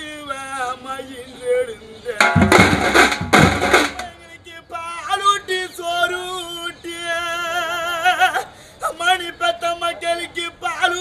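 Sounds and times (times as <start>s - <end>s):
man singing a lament: 0.0s - 2.4s, 4.0s - 11.0s
loud drum strokes: 2.2s - 4.1s.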